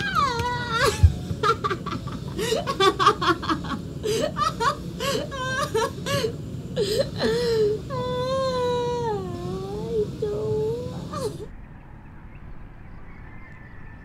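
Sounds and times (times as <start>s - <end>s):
woman laughing: 0.0s - 9.2s.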